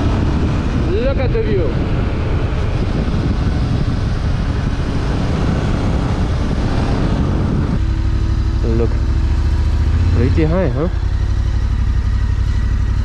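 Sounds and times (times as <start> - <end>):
wind rush over microphone: 0.0 - 8.6
motorcycle engine: 0.0 - 13.0
road noise: 0.0 - 13.0.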